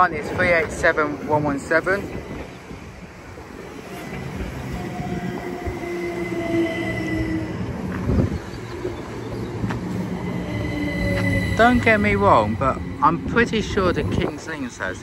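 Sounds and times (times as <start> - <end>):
train rumbling: 0.0 - 15.0
train wheels squealing: 8.4 - 14.4.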